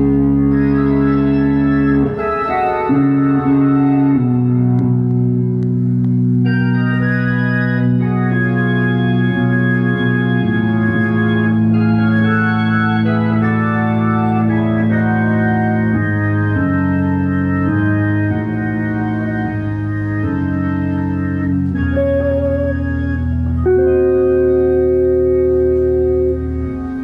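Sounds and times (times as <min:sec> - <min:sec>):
organ playing sustained chords: 0:00.0 - 0:27.0
wavering high organ note: 0:06.4 - 0:27.0.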